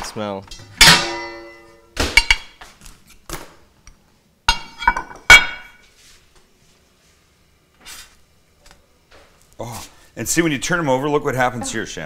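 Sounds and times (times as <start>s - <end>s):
ceramic plates clinking: 4.5s - 5.8s.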